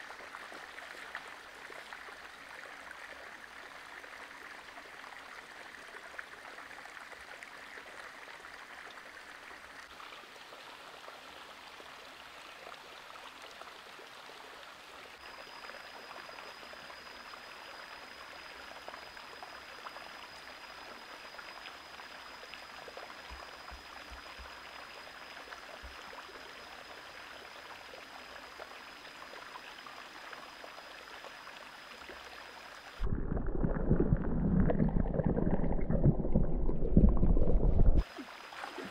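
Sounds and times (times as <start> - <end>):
muffled underwater rumble: 33.0 - 38.2
creek water rushing: 37.9 - 38.9.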